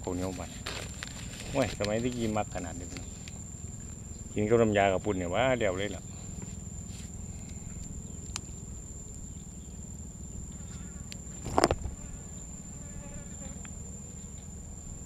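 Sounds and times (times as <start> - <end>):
crunch of eating: 0.0 - 4.2, 6.0 - 9.5, 10.5 - 12.2
high-pitched insect drone: 0.0 - 15.0
faint ticks: 7.4 - 9.2, 13.4 - 14.5.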